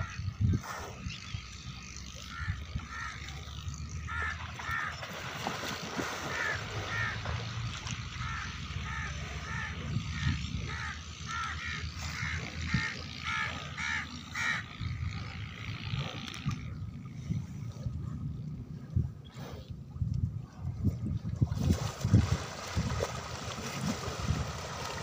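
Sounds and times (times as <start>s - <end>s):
steady low rumble: 6.6s - 21.6s.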